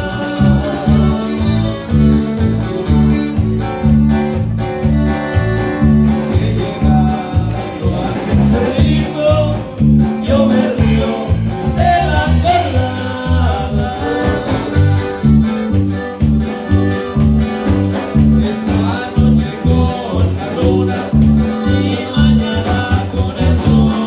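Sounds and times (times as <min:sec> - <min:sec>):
man singing: 0:00.0 - 0:02.4, 0:05.8 - 0:15.2, 0:17.9 - 0:24.0
accordion: 0:00.0 - 0:24.0
live band playing: 0:00.0 - 0:24.0.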